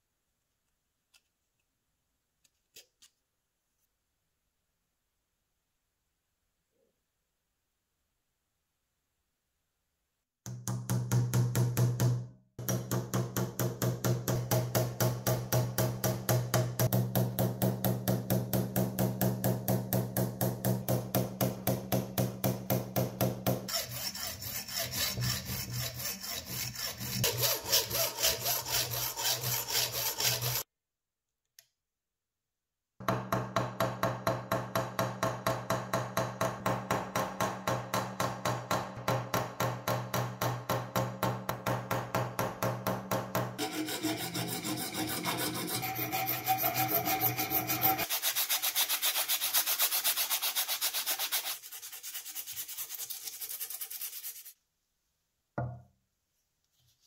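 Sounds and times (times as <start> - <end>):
hammer strikes: 10.5 - 23.7, 33.0 - 48.1
hacksaw rasping through metal: 23.7 - 30.6, 43.6 - 48.2.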